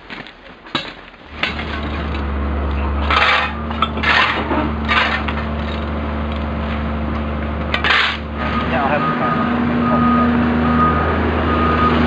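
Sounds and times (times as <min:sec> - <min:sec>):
engine humming: 0:01.2 - 0:12.0
hand tools scraping on steel rail: 0:03.0 - 0:05.4, 0:07.7 - 0:08.2.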